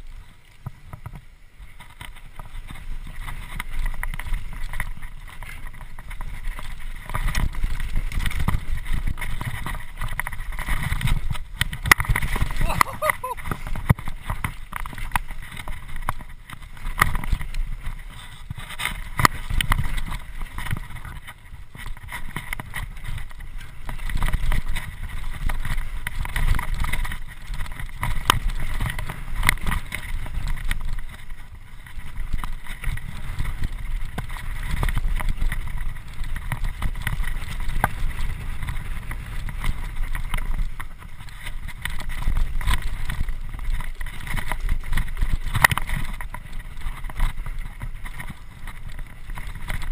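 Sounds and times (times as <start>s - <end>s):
bike clicks and knocks: 0.0s - 49.9s
bike tyres on dirt: 0.0s - 49.9s
wind rumbling on microphone: 0.0s - 49.9s.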